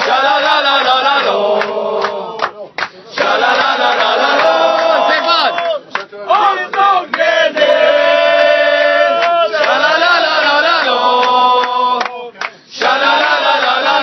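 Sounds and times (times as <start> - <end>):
group chanting in unison: 0.0 - 14.0.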